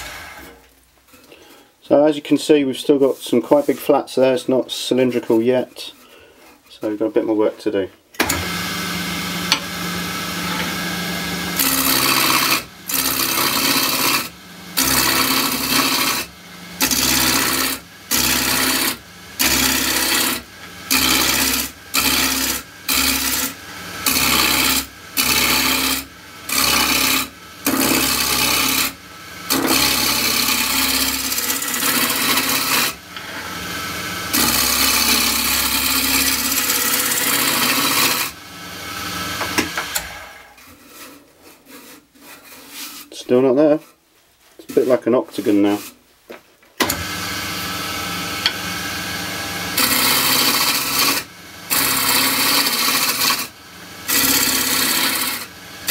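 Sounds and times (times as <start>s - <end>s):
lathe humming: 8.2s - 40.5s, 46.8s - 55.9s
gouge cutting wood on lathe: 8.2s - 43.1s, 46.8s - 55.9s.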